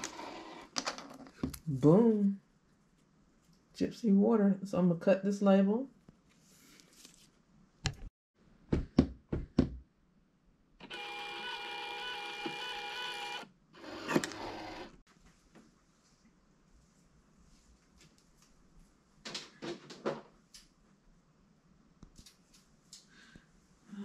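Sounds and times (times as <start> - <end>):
label printer whining: 10.8 - 15.0.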